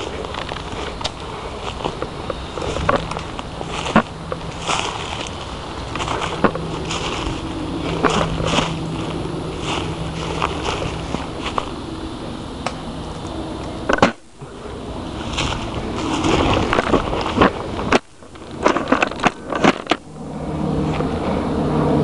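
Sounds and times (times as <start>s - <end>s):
footsteps through tall grass: 0.0s - 11.8s, 15.0s - 19.5s
twigs cracking: 0.0s - 12.0s, 15.2s - 20.1s
leaves rustling: 0.0s - 22.0s.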